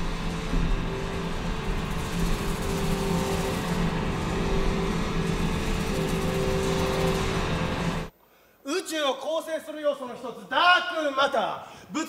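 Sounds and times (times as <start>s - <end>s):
electronic drone: 0.0s - 8.1s.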